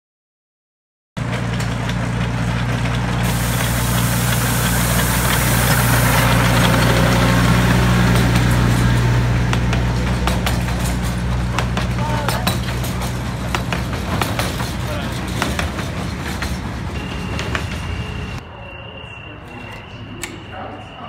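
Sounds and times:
miniature train engine humming: 0:01.2 - 0:18.4
hiss: 0:03.2 - 0:07.3.

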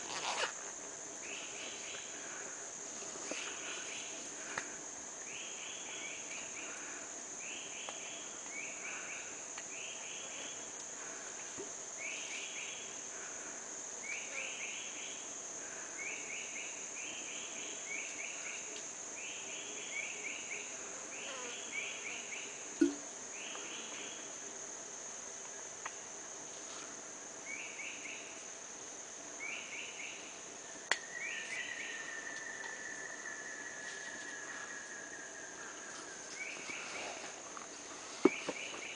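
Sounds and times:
insects droning: 0:00.0 - 0:38.9
sharp snap: 0:30.9 - 0:31.1.

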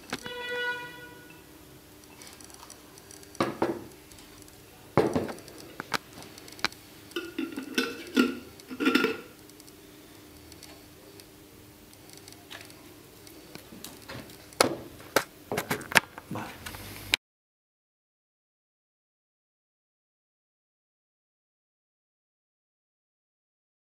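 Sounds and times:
jar knocking on wooden table: 0:03.4 - 0:03.9
metal lid screwing onto glass jar: 0:07.2 - 0:09.3.

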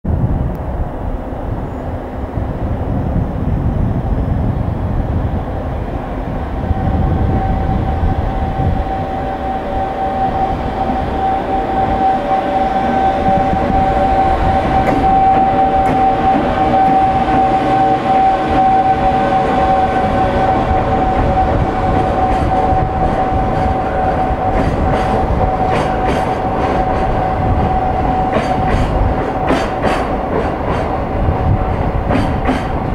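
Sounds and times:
freight train rumble: 0:00.0 - 0:32.9
high whine: 0:00.1 - 0:32.9.

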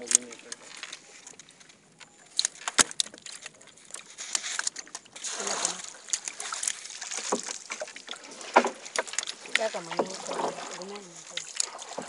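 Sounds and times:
water splashing around boat: 0:00.0 - 0:12.0
pole splashing through water: 0:02.4 - 0:12.0
sharp knocks on wooden boat: 0:08.4 - 0:09.1.

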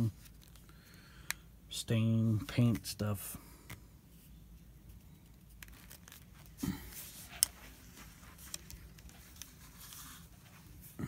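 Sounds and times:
rifle rustling while handled: 0:05.4 - 0:10.8.

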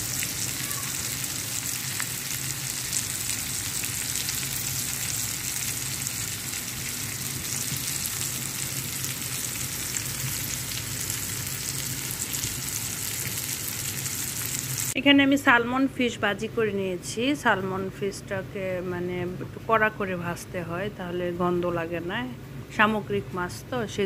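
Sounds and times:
fish frying in oil: 0:00.0 - 0:15.0.

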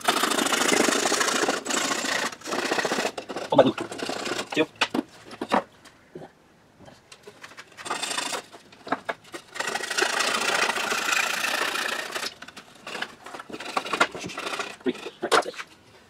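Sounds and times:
hand saw cutting wood: 0:00.0 - 0:04.7, 0:07.8 - 0:08.6, 0:09.4 - 0:15.5.

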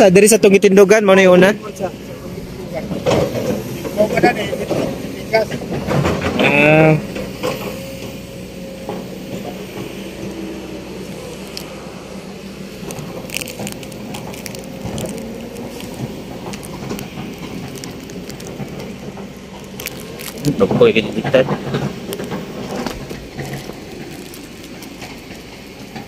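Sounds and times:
diesel engine running: 0:00.0 - 0:26.0
clicks and crackles: 0:11.1 - 0:11.8, 0:12.7 - 0:26.0.

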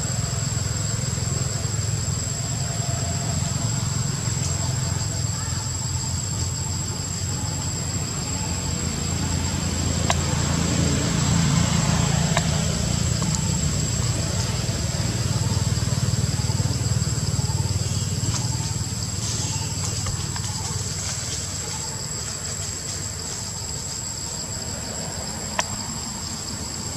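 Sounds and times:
high-pitched insect drone: 0:00.0 - 0:26.9.

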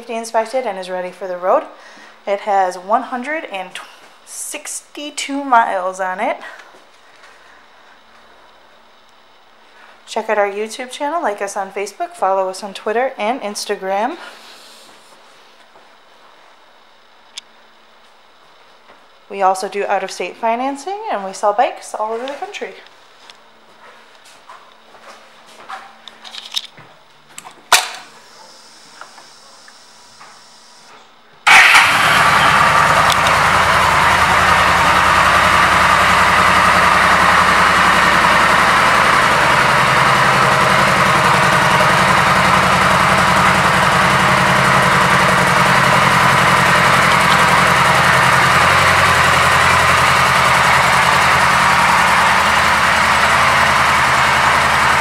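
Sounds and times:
motorcycle engine starting and idling: 0:31.4 - 0:55.0
clicks: 0:33.0 - 0:33.4.

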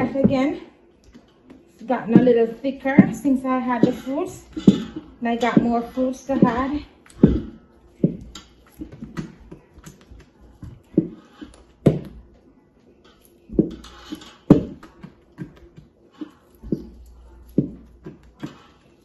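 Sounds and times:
wooden spoon scraping metal bowl: 0:01.8 - 0:09.3.

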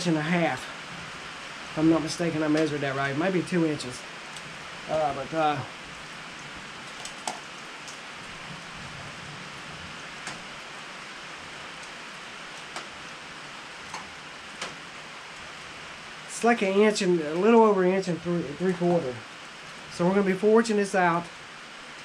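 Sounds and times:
rain hissing on building: 0:00.0 - 0:22.0.

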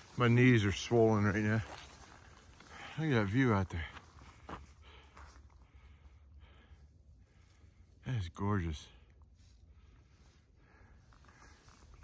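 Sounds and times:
footsteps on dry leaves: 0:00.0 - 0:03.1.

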